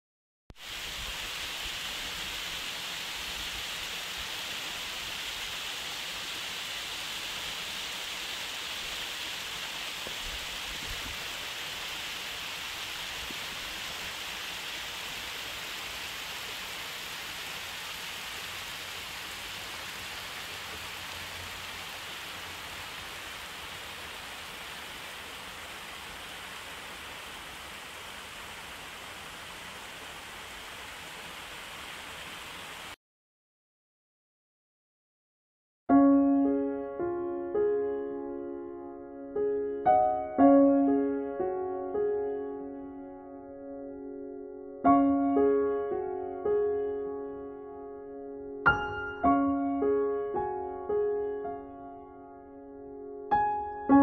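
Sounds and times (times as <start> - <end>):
water rushing over stone wall: 0.6 - 33.0.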